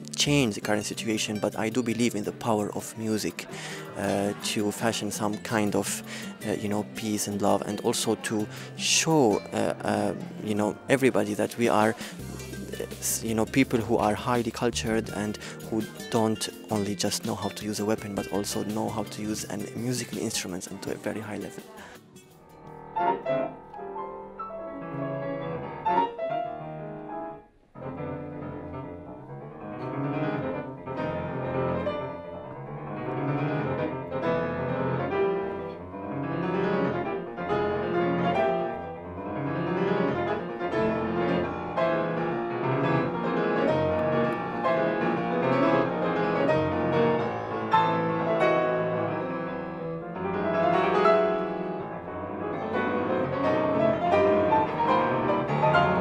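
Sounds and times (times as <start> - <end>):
solo piano classical piece: 22.4 - 56.0.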